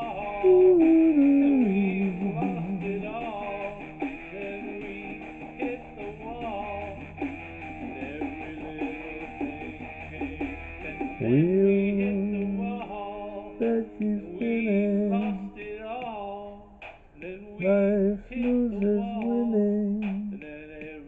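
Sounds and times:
rock song playing back: 0.0 - 15.6
man singing wordless notes: 0.0 - 21.0.

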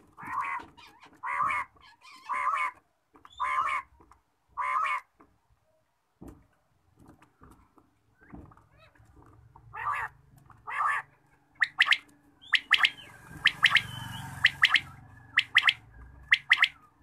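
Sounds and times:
quail calling: 0.1 - 3.9, 4.5 - 5.1, 9.7 - 17.0.

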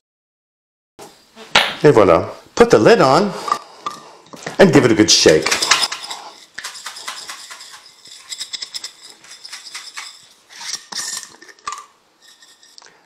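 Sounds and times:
crumbs rattling in shaken jar: 5.0 - 12.9.

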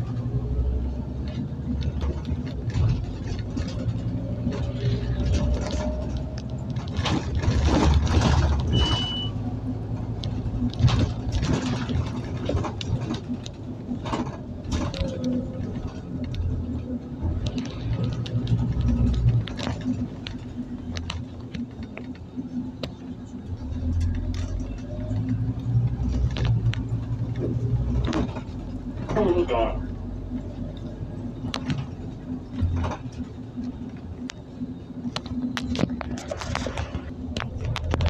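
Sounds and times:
bus diesel engine rumble: 0.0 - 38.0
short high beep: 8.7 - 9.4.

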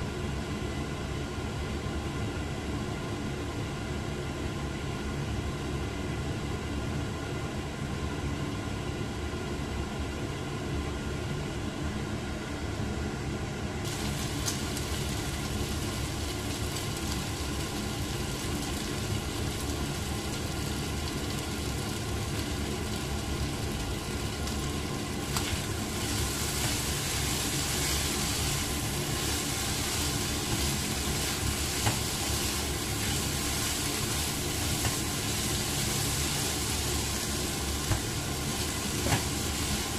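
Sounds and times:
low machine hum: 0.0 - 39.9
food sizzling in a wok: 13.9 - 39.9.

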